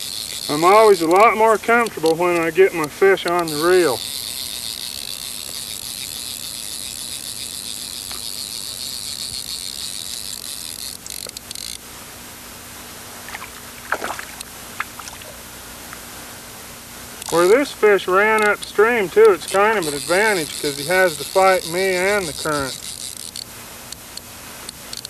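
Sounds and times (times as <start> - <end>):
faint reel clicks: 0.0 - 11.8, 17.2 - 25.0
fly reel drag buzzing: 0.0 - 11.8, 13.1 - 15.5, 17.2 - 25.0.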